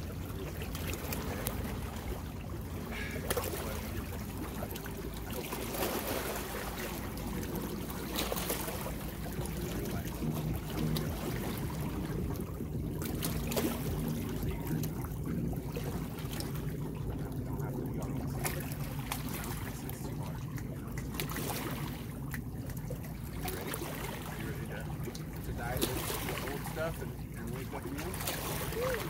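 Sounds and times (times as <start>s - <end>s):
steady low drone: 0.0s - 29.0s
water lapping around rocks: 0.0s - 29.0s.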